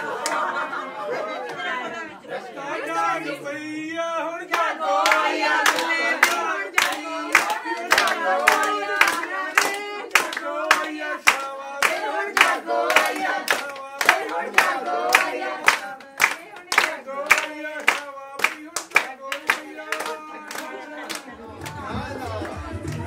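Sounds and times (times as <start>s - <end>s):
steady hand-clapping: 0.2s - 0.5s, 4.5s - 23.0s.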